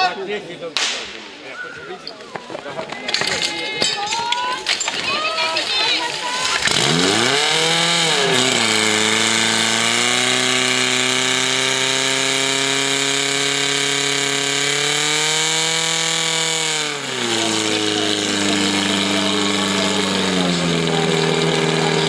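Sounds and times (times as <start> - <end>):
pump engine running hard: 6.6 - 22.0.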